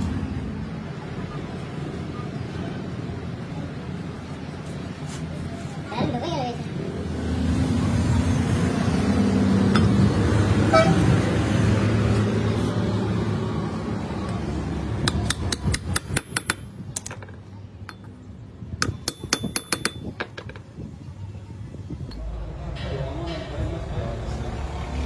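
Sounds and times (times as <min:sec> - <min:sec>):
hammer tapping on metal: 0:15.0 - 0:17.2, 0:18.8 - 0:20.6
low rumbling noise: 0:20.1 - 0:25.0.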